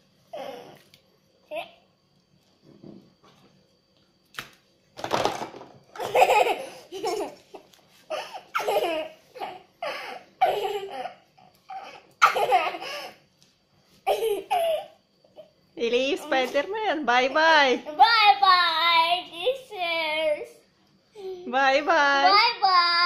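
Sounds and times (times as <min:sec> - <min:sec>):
girl laughing: 0:06.0 - 0:13.2, 0:14.1 - 0:14.9.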